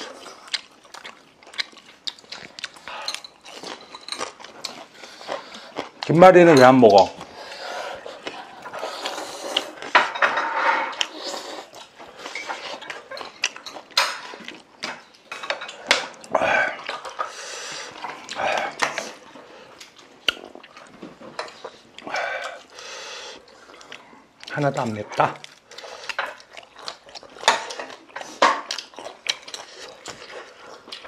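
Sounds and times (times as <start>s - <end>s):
eating noises: 0.0s - 10.1s, 11.0s - 31.0s
chopsticks and spoons clicking on bowls: 2.8s - 4.8s, 12.4s - 17.4s.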